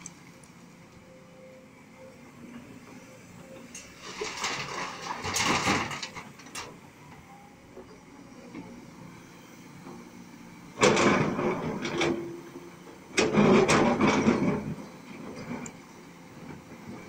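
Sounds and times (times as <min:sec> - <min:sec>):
excavator engine running: 0:00.0 - 0:17.0
excavator bucket scraping rocky soil: 0:03.8 - 0:06.7, 0:13.2 - 0:15.7.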